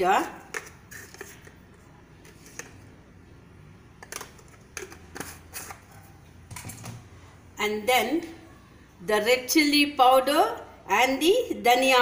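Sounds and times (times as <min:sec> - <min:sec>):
kitchen utensils clicking and tapping: 0:04.0 - 0:05.9.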